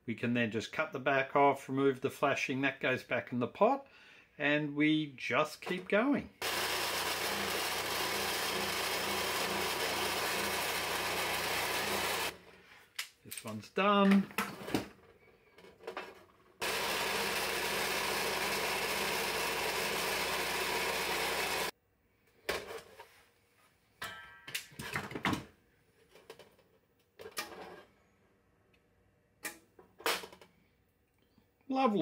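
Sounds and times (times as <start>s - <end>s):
massage gun running: 6.4s - 12.4s, 16.6s - 21.7s
clicks and knocks of clamps: 24.0s - 27.8s.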